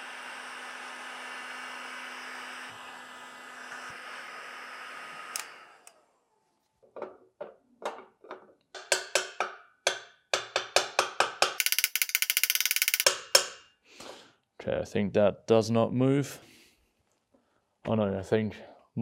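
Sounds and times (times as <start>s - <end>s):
heating tool hissing: 0.0s - 6.0s
hammer striking metal wrench: 8.7s - 13.7s.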